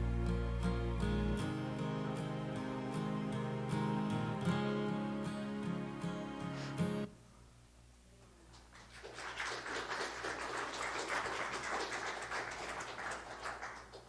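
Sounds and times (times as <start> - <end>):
congregation clapping: 8.5 - 14.0.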